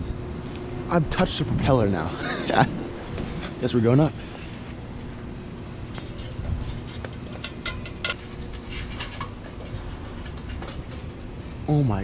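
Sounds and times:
steady low hum: 0:00.0 - 0:12.0
clanks and taps on steel ladder: 0:05.9 - 0:11.2.

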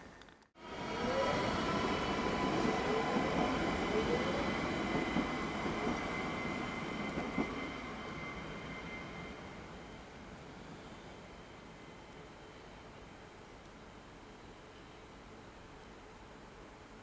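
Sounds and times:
train wheels rolling: 0:00.1 - 0:09.4
electric train whine: 0:00.6 - 0:16.7.

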